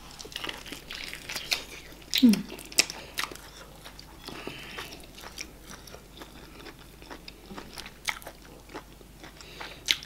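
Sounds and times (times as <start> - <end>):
chewing and lip smacks: 0.1 - 10.0.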